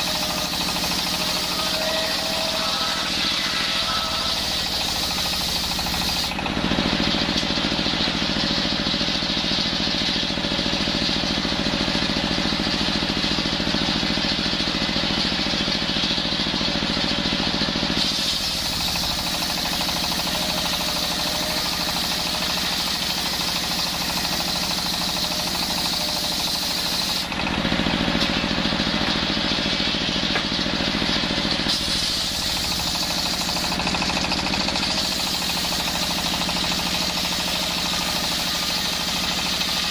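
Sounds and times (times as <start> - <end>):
circular saw cutting wood: 0.0 - 7.8, 18.0 - 29.6, 31.1 - 39.9
saw drive knocking throb: 0.0 - 39.9.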